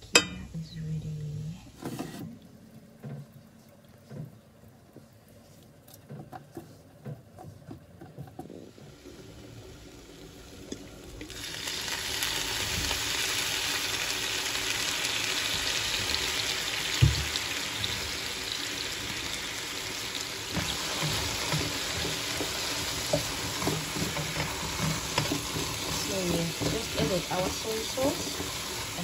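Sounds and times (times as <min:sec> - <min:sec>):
mushrooms sizzling in a frying pan: 0:08.8 - 0:29.0
knock: 0:17.0 - 0:17.3
spatula scraping: 0:20.5 - 0:29.0.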